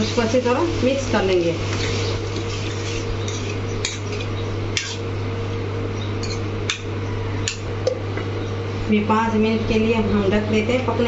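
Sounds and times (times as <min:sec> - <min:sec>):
vegetables sizzling in oil: 0:00.0 - 0:05.1.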